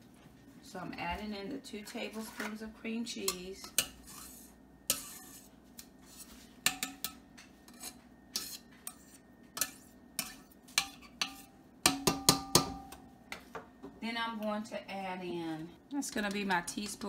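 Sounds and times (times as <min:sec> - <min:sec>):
spatula knocking on enamel pot: 0:10.8 - 0:12.9.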